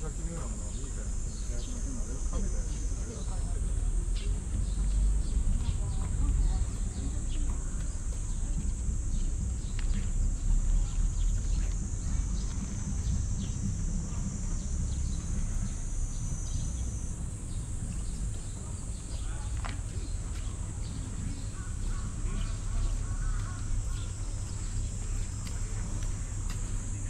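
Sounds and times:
high-pitched insect drone: 0.0s - 7.2s, 8.0s - 19.6s
low rumble: 3.4s - 27.0s.

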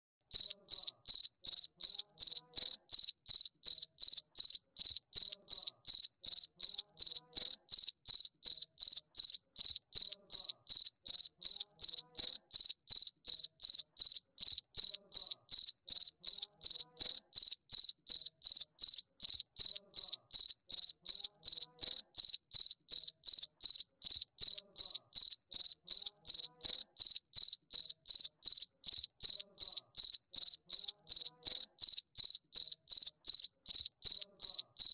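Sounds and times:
cricket chirping: 0.3s - 34.9s.

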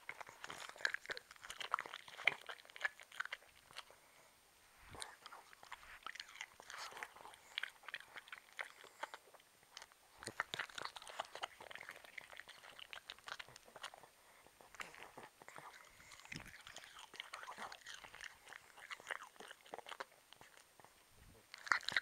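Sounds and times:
dogs crunching pear: 0.0s - 4.2s, 4.8s - 22.0s.

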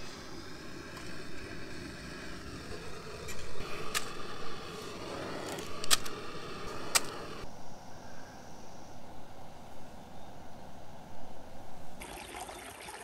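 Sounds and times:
gas stove hissing: 0.0s - 7.5s.

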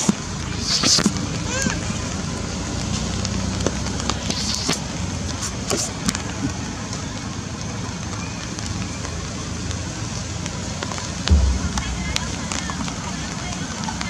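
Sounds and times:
steady rain falling: 1.2s - 11.3s
low rumble: 11.3s - 13.3s.

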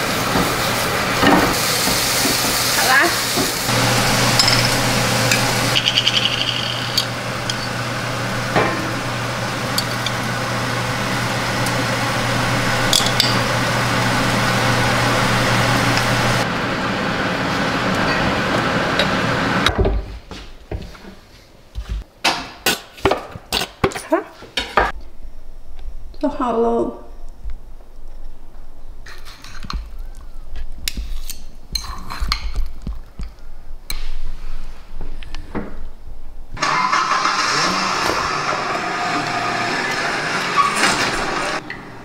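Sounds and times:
plates and cutlery set on stone: 4.4s - 4.8s
spoons clinking on ceramic bowls: 4.4s - 7.8s.

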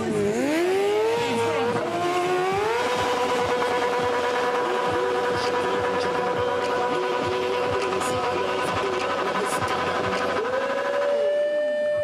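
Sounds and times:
motorbike engine revving: 0.0s - 12.0s.

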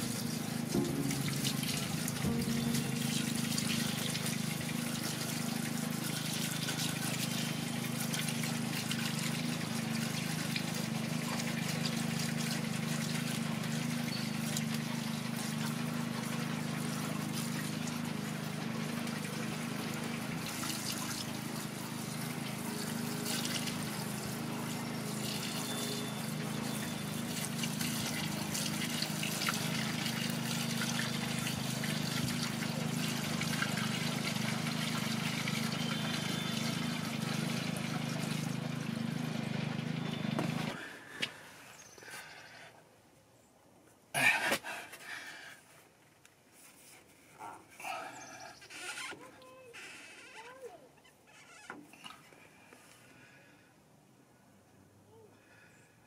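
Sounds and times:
low hum: 0.0s - 8.4s
fuel pouring through a funnel: 0.0s - 40.9s.

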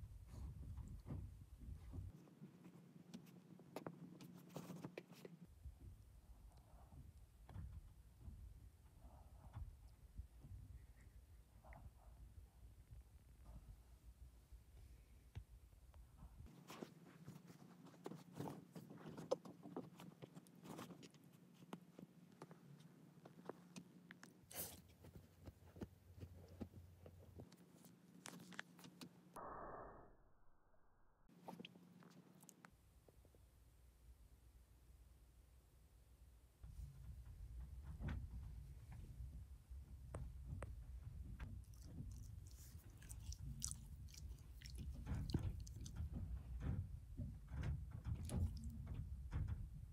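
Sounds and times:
dog chewing: 41.5s - 46.2s.

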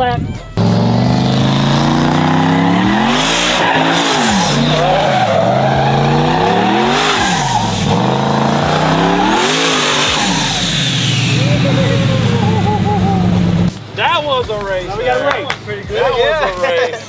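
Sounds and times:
tire noise: 0.0s - 15.9s
truck engine revving at full throttle: 0.6s - 13.8s.

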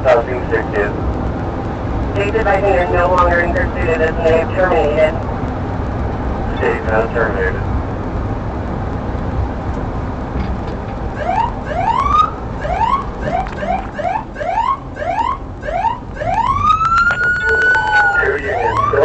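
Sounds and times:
road and engine noise: 0.0s - 19.0s
police siren whooping and wailing: 11.2s - 19.0s.

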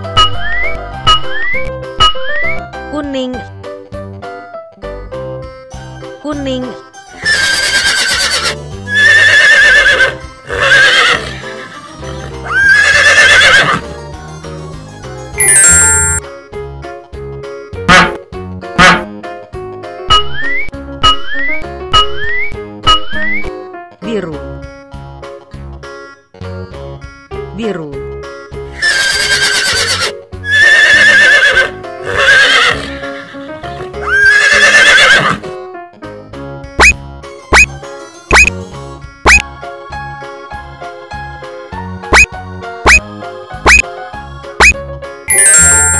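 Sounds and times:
children's background music: 0.0s - 7.7s, 8.5s - 9.0s, 9.9s - 10.6s, 11.2s - 12.8s, 13.7s - 28.8s, 35.4s - 45.9s
horse neighing: 7.2s - 13.8s, 28.8s - 35.4s.

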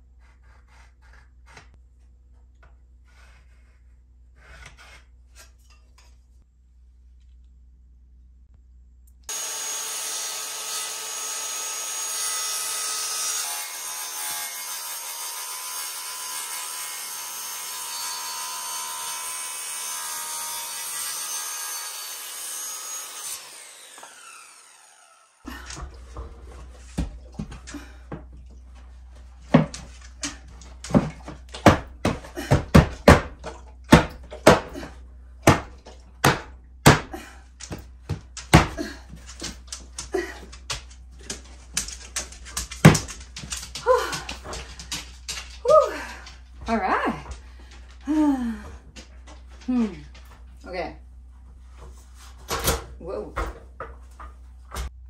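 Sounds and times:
circular saw cutting wood: 9.3s - 25.5s.

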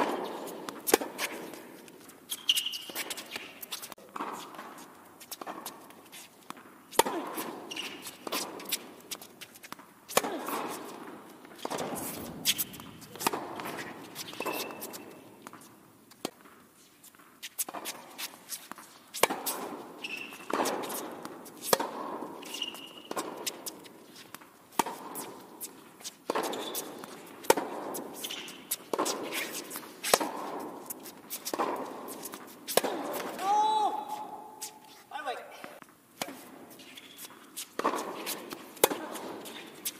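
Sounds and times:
tennis racket strikes: 0.0s - 1.7s, 9.5s - 15.6s, 17.6s - 25.4s, 26.2s - 34.8s, 37.6s - 39.9s
tennis ball bounces: 0.0s - 3.5s, 4.1s - 16.6s, 18.7s - 33.4s, 37.7s - 39.9s
shoes squeaking on court: 0.0s - 39.9s.

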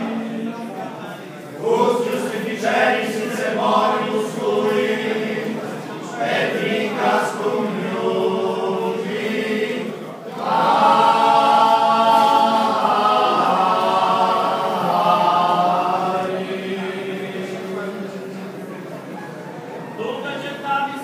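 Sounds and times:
men's vocal group singing a cappella: 1.6s - 17.9s.

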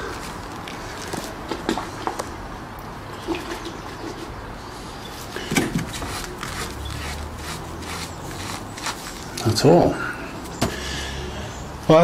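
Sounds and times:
sponge rubbing a tyre: 5.8s - 9.4s.

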